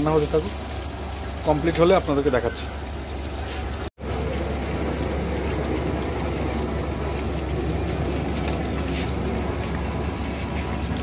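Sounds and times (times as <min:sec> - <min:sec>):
gravy bubbling and sizzling in a wok: 0:00.0 - 0:11.0
low hum: 0:04.0 - 0:11.0.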